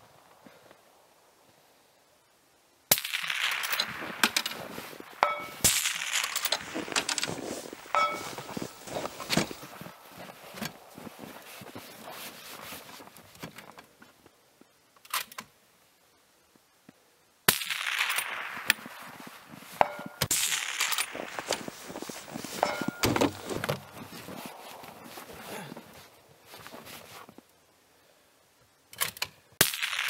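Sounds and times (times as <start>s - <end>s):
gear handling clicks and knocks: 6.3s - 9.6s.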